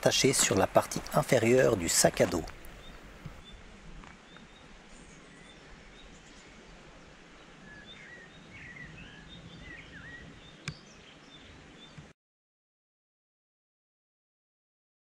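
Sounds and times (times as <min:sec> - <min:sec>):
faint steady hiss: 0:00.0 - 0:09.6.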